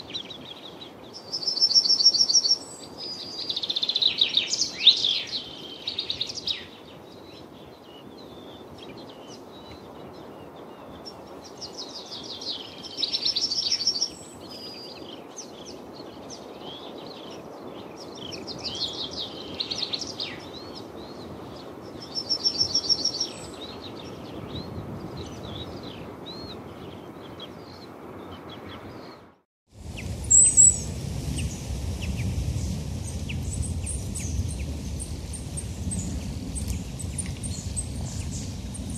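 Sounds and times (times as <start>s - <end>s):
songbirds singing: 0.0s - 38.9s
steady outdoor hiss: 0.0s - 38.9s
bird chirps: 1.2s - 6.7s, 22.0s - 29.2s, 30.0s - 32.2s
low rumbling noise: 29.7s - 38.9s.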